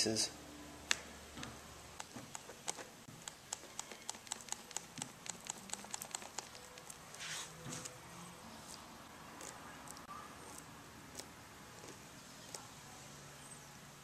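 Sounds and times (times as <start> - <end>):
paintbrush tapping: 2.0 - 7.0
brush swishes: 7.1 - 8.0.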